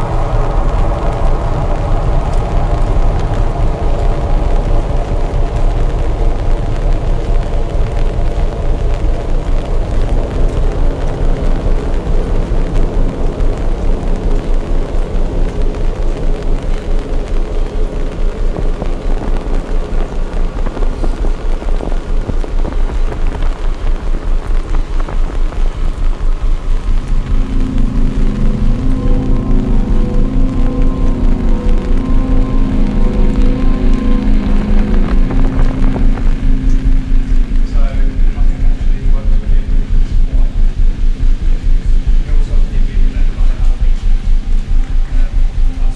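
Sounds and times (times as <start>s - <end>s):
ambient music drone: 0.0s - 45.9s
heavy rain falling: 0.0s - 45.9s.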